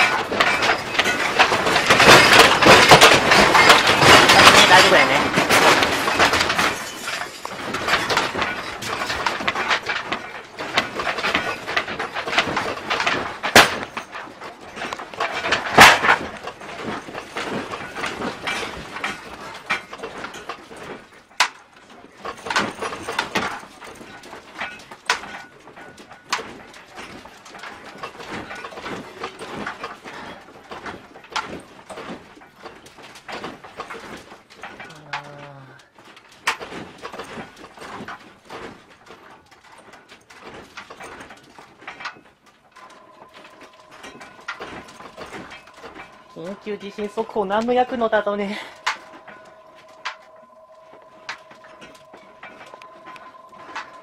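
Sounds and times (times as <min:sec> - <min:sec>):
household objects rattling: 0:00.0 - 0:54.0.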